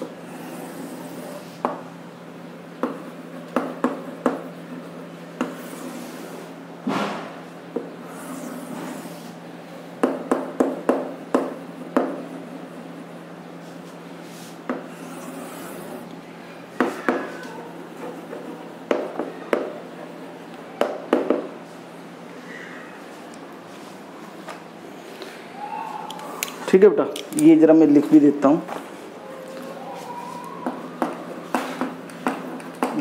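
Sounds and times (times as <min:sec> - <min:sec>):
chalk tapping and scratching on blackboard: 0:02.8 - 0:06.4.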